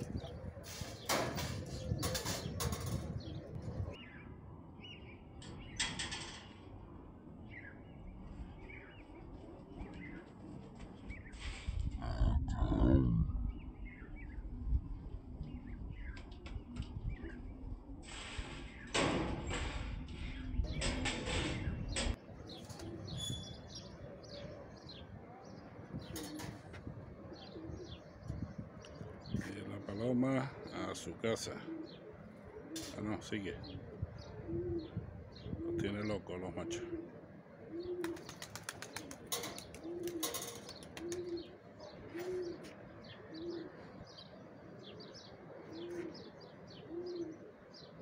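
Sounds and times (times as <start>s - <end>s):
pigeons cooing: 0.0s - 4.1s, 12.0s - 25.0s, 25.8s - 48.0s
small birds chirping: 37.7s - 48.0s
pigeon wings flapping: 38.0s - 41.4s.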